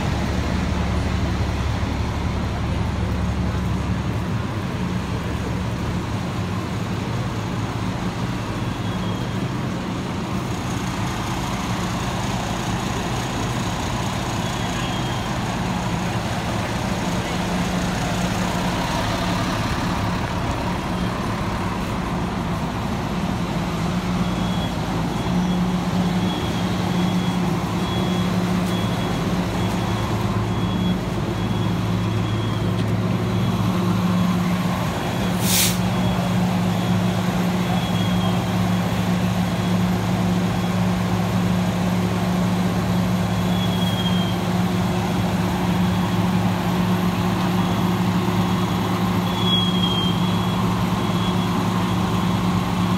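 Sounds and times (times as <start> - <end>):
diesel engine droning: 0.0 - 52.9
sharp hiss: 35.3 - 36.0.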